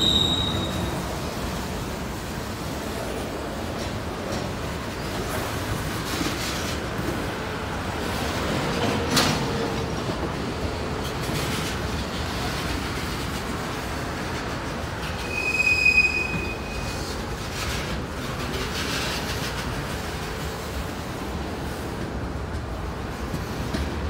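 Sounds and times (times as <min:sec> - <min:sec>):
high wheel squeal: 0:00.0 - 0:01.2, 0:15.1 - 0:17.2
steel wheels rumbling on rail: 0:00.0 - 0:24.0.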